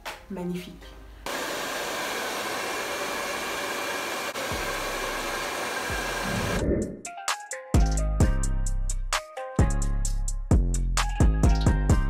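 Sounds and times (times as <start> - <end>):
hair dryer blowing: 1.2 - 6.6.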